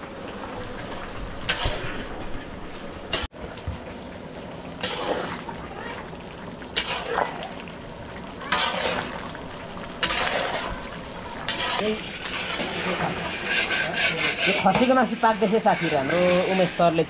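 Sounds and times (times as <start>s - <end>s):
meat sizzling: 4.4s - 17.0s
metal spatula scraping a wok: 8.4s - 9.2s, 10.0s - 17.0s.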